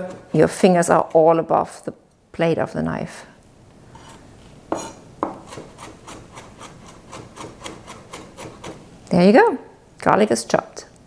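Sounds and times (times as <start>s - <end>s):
knife chopping on wooden board: 0.0s - 1.2s, 4.7s - 8.8s.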